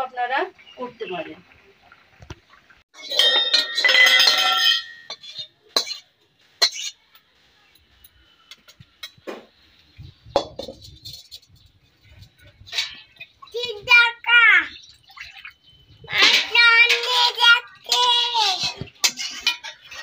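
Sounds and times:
metal utensils and pots clattering: 0:02.9 - 0:07.2, 0:08.0 - 0:09.6, 0:10.2 - 0:13.9, 0:16.0 - 0:20.0.

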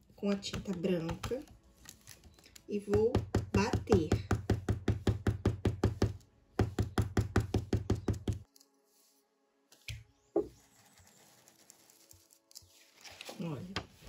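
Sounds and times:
faint background music: 0:00.0 - 0:04.4
stencil brush tapping on fabric: 0:00.2 - 0:01.5, 0:02.9 - 0:08.5.

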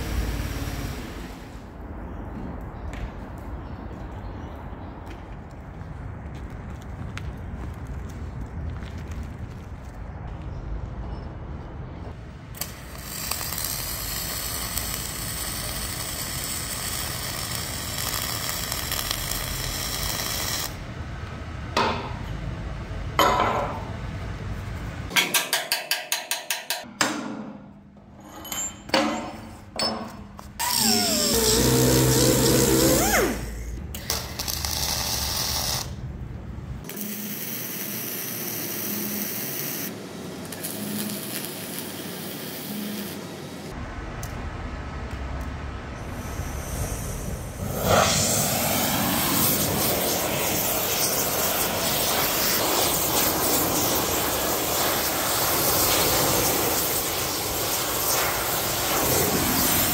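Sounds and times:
welding crackling hiss: 0:00.0 - 0:01.6, 0:12.5 - 0:20.9, 0:30.6 - 0:36.0, 0:36.8 - 0:43.7, 0:46.0 - 0:59.9
hammer striking metal: 0:25.1 - 0:27.8, 0:28.4 - 0:30.3.

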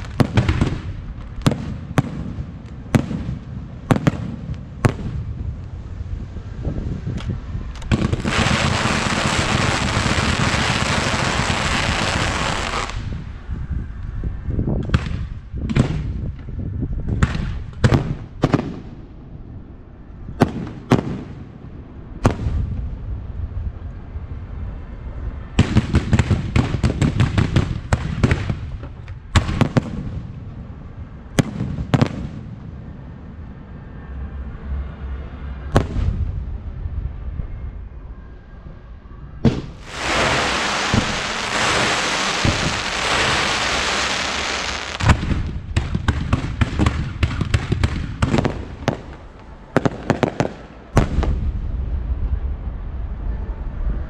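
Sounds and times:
fireworks bangs: 0:00.0 - 0:05.6, 0:07.9 - 0:13.3, 0:14.8 - 0:16.5, 0:17.1 - 0:19.0, 0:20.4 - 0:21.6, 0:25.6 - 0:30.8, 0:31.4 - 0:32.7, 0:39.4 - 0:52.5
fireworks crackling: 0:00.0 - 0:06.0, 0:07.8 - 0:13.4, 0:39.5 - 0:52.0.

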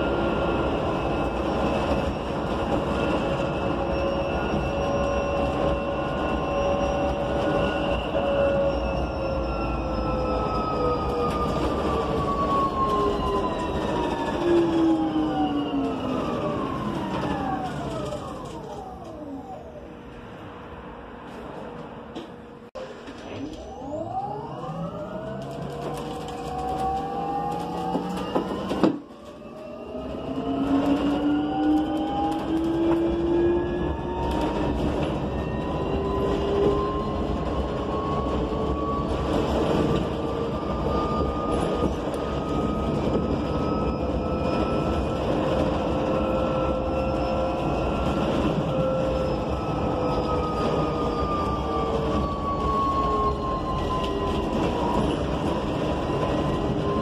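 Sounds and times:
electric bus motors whining: 0:00.0 - 0:57.0
road noise: 0:16.2 - 0:29.1.

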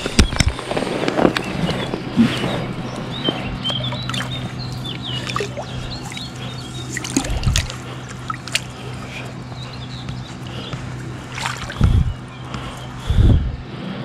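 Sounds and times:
water sloshing and splashing: 0:01.6 - 0:09.7, 0:10.4 - 0:12.8.

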